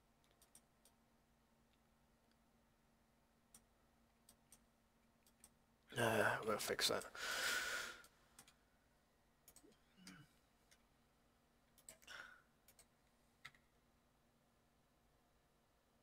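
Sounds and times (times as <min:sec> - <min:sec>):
computer mouse clicks: 0:00.2 - 0:01.0, 0:03.5 - 0:05.6, 0:08.0 - 0:08.6, 0:09.4 - 0:10.9, 0:11.7 - 0:13.7
person breathing: 0:07.1 - 0:08.2, 0:11.9 - 0:12.6.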